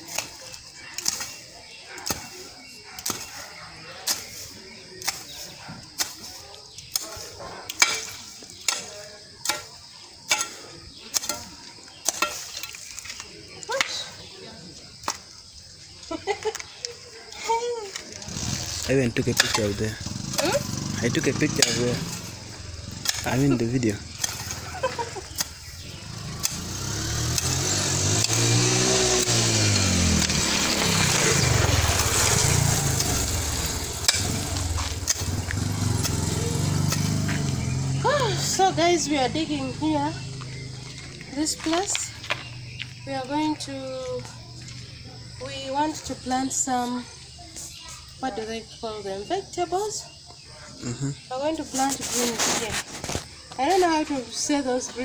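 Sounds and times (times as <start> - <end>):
hoe chopping into soil: 4.0 - 12.9, 23.0 - 37.9
motor vehicle passing: 18.1 - 49.3.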